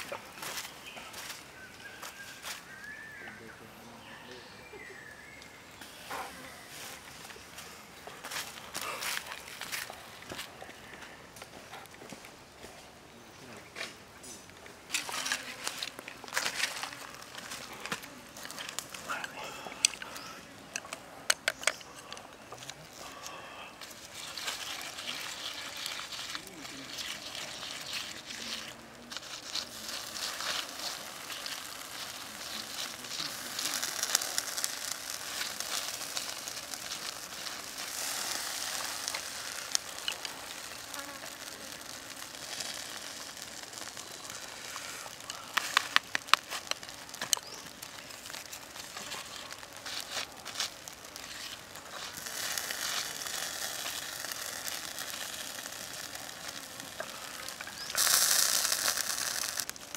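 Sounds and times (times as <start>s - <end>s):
meat sizzling over embers: 5.2s - 11.5s, 14.2s - 59.9s
sharp pops: 29.2s - 59.9s.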